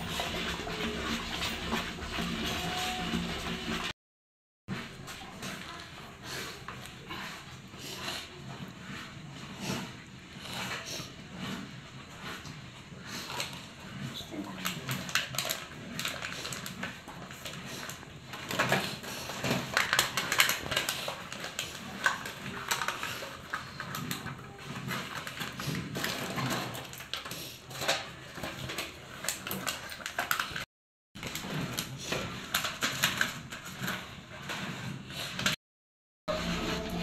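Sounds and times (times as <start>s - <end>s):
wooden paddle scraping metal pan: 0.0s - 3.9s, 36.3s - 37.0s.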